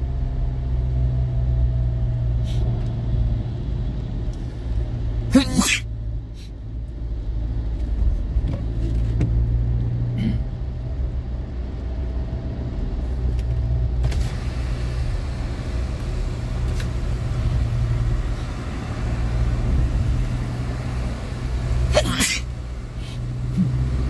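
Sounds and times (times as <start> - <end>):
car engine and road rumble: 0.0 - 24.0
tyre hiss on wet road: 6.4 - 6.6, 14.2 - 23.4.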